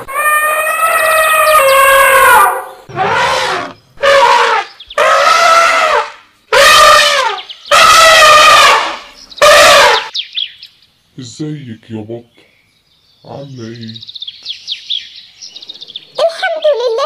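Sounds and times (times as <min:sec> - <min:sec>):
animal wails: 0:00.0 - 0:10.1.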